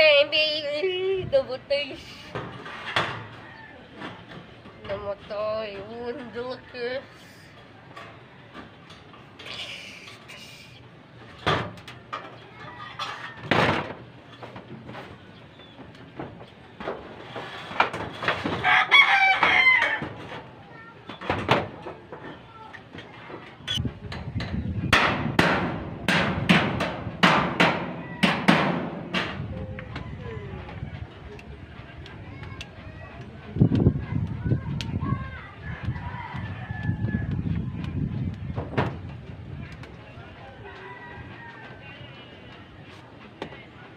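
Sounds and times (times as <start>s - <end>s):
hammer striking steel framing: 24.1s - 29.4s.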